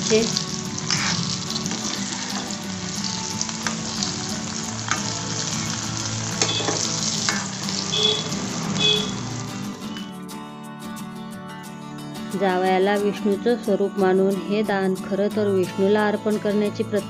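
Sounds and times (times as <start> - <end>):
dough balls sizzling in hot oil: 0.0 - 9.7.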